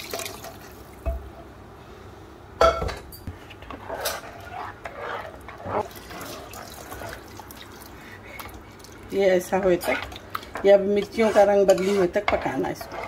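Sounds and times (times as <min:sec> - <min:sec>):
ladle stirring and knocking pan: 0:02.6 - 0:07.6, 0:09.5 - 0:13.0.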